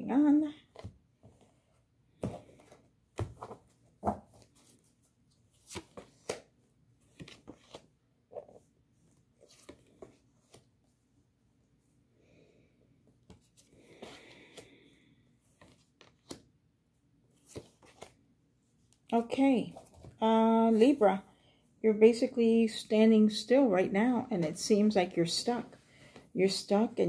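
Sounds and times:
cards being shuffled: 0:15.6 - 0:16.5, 0:17.4 - 0:18.2.

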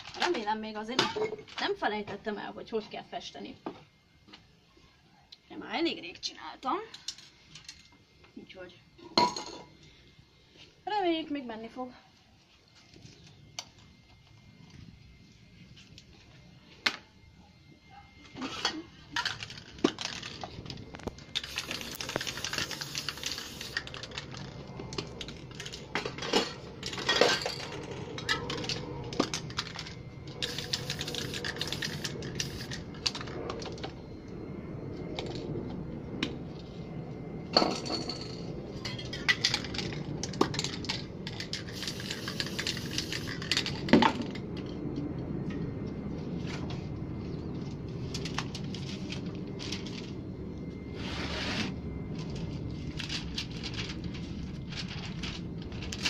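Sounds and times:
spray paint can hissing: 0:21.3 - 0:24.4, 0:30.4 - 0:32.8, 0:41.6 - 0:43.6.

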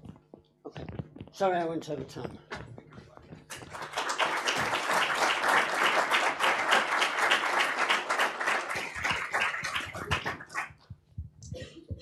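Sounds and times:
audience applauding: 0:03.5 - 0:10.8.

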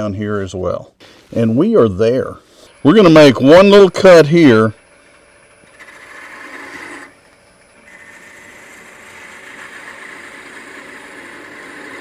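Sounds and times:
lathe tool scraping wood: 0:05.6 - 0:12.0.

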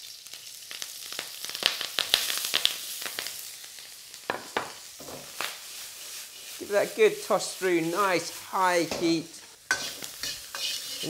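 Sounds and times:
vegetables sizzling in oil: 0:00.0 - 0:11.0
utensil stirring in wok: 0:04.3 - 0:11.0.

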